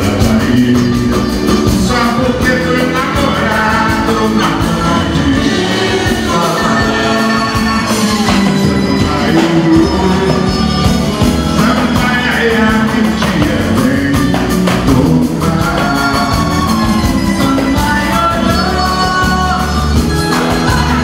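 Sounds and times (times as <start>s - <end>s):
lead voice singing: 0.0s - 21.0s
samba band playing: 0.0s - 21.0s.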